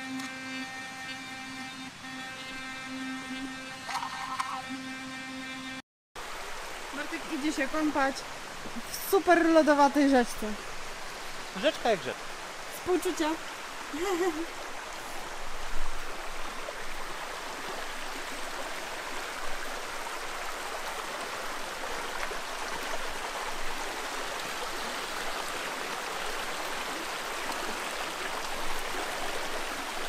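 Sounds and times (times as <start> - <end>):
stream running over stones: 6.2 - 30.0.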